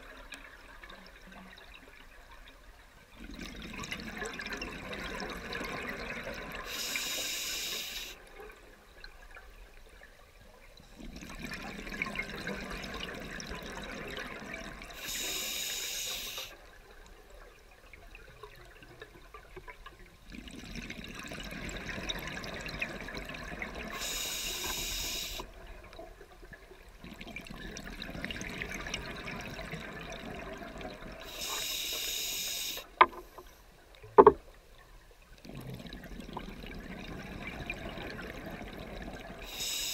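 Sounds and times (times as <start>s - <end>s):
diver breathing through regulator: 6.7s - 8.2s, 15.0s - 16.6s, 24.0s - 25.5s, 31.3s - 33.0s, 39.4s - 39.9s
exhaled bubbles: 10.9s - 15.4s, 20.2s - 25.9s, 35.4s - 39.9s.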